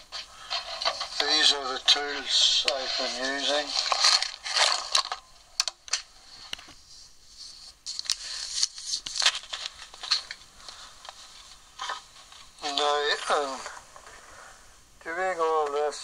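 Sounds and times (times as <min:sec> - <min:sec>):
short rustling scrapes: 0:00.1 - 0:05.2.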